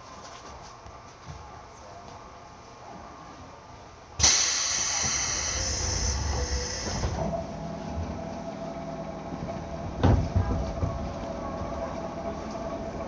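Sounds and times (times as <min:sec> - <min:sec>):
compressed air hissing from train: 0:04.2 - 0:07.2.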